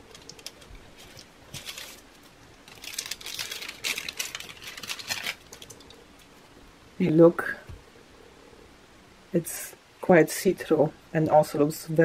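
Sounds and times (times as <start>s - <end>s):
plastic crinkling and rustling: 0.0s - 6.4s
paper peeling off plastic: 0.1s - 5.8s.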